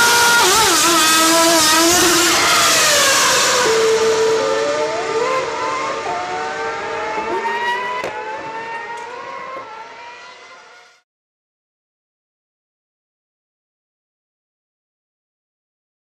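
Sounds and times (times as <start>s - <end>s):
racing car engines at high revs: 0.0s - 11.0s.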